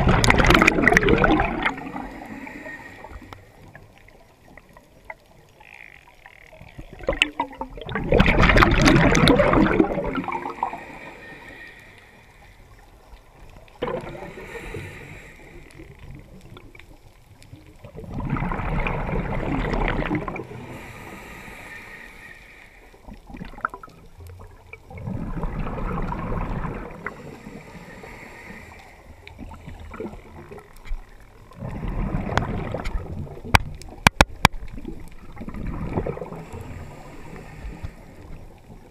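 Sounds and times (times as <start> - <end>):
water sloshing and bubbling: 0.0 - 38.9.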